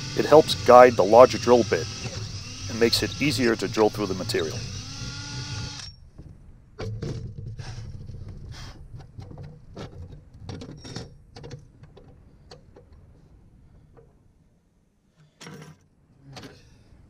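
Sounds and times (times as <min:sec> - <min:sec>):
low steady hum: 0:00.0 - 0:07.1.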